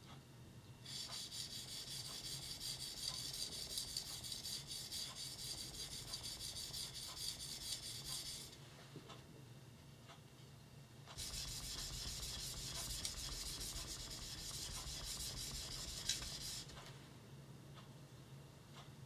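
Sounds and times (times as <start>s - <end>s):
blade sharpening on whetstone: 0.9s - 8.6s, 11.2s - 16.7s.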